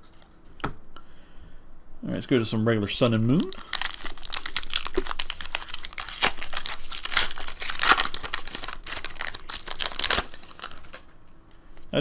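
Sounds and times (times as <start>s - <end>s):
foil wrapper crinkling: 3.3s - 11.1s.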